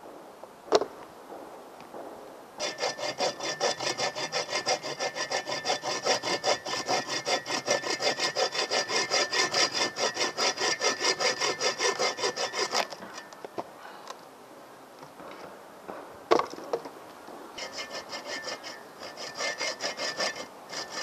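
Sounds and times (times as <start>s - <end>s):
hand saw cutting branch: 2.6s - 13.0s, 17.6s - 21.0s.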